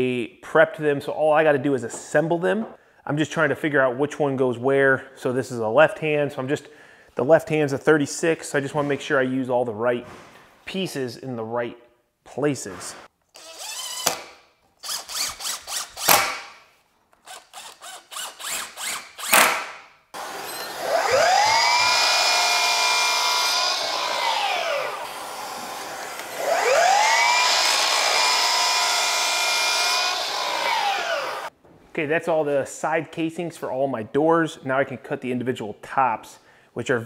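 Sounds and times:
saw blade cutting wood: 12.6s - 16.6s, 17.2s - 31.5s
miter saw whining: 17.3s - 31.5s.

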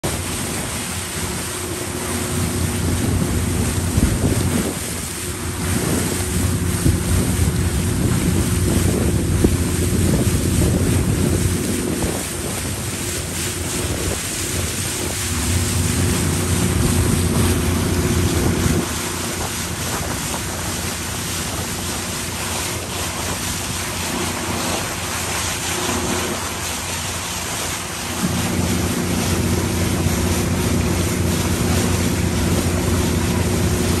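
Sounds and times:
motorboat engine running: 0.0s - 34.0s
water rushing past hull: 0.0s - 34.0s
wind buffeting microphone: 0.0s - 34.0s.

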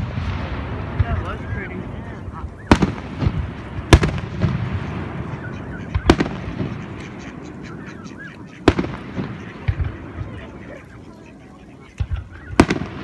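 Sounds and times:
firework crackle: 0.0s - 2.0s, 2.7s - 5.2s, 6.0s - 7.0s, 8.6s - 10.2s, 12.0s - 13.0s
firework bangs: 0.0s - 7.6s, 8.6s - 10.6s, 12.0s - 13.0s.

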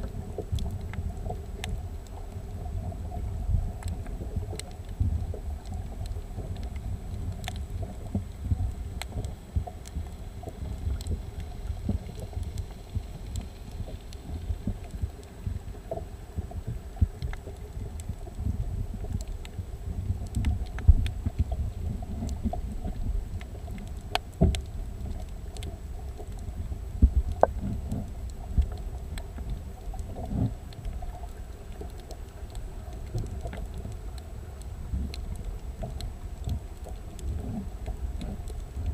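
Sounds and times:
underwater low rumble: 0.0s - 38.9s.

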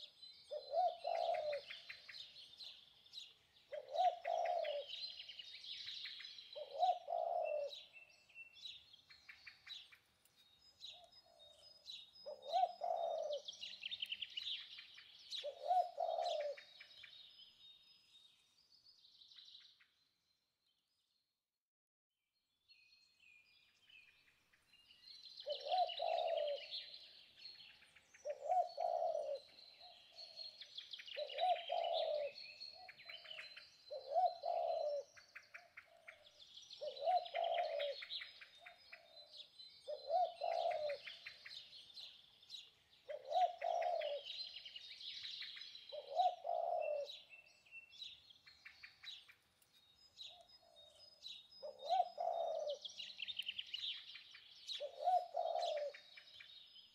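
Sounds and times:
dove cooing: 0.0s - 2.2s, 3.7s - 5.1s, 6.6s - 7.9s, 12.2s - 14.0s, 15.3s - 16.9s, 25.4s - 27.0s, 28.2s - 30.4s, 31.2s - 38.3s, 39.8s - 41.7s, 43.1s - 44.6s, 45.9s - 47.3s, 51.6s - 53.1s, 54.7s - 56.2s
small birds chirping: 0.0s - 21.3s, 22.6s - 56.9s.

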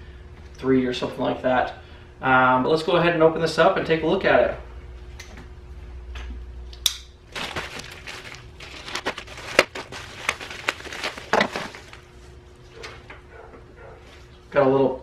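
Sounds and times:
plastic mailer crinkling: 7.3s - 12.2s.

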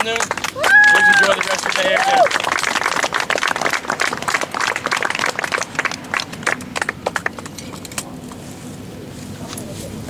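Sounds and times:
small audience applauding: 0.0s - 7.6s.

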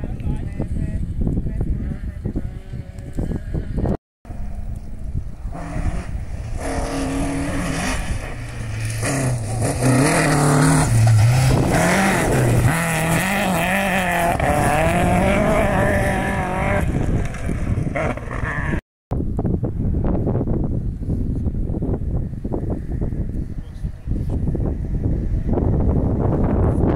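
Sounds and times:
rally car engine revving past: 5.5s - 18.8s.

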